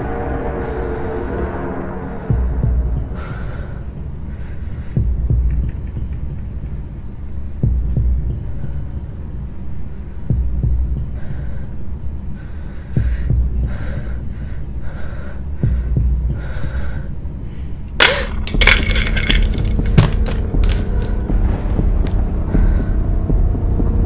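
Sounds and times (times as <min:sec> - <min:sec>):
steady low hum: 0:00.0 - 0:24.0
low heartbeat-like pulse: 0:04.9 - 0:06.8, 0:07.6 - 0:08.6, 0:10.2 - 0:11.2, 0:13.0 - 0:13.8, 0:15.6 - 0:16.6, 0:21.2 - 0:24.0.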